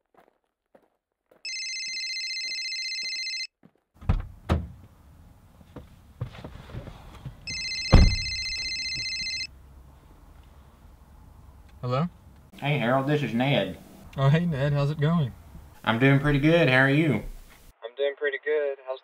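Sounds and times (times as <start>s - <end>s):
telephone ringing: 1.5s - 3.5s, 7.5s - 9.5s
car door thumps: 4.0s - 4.8s, 5.8s - 8.4s.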